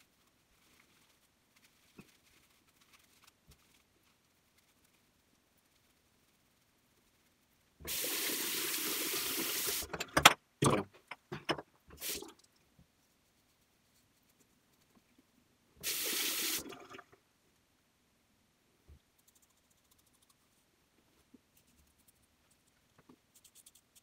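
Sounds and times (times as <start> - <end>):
water running from tap: 7.8 - 10.1, 12.0 - 12.3, 15.8 - 17.1
sharp knocks and clunks: 9.9 - 11.8.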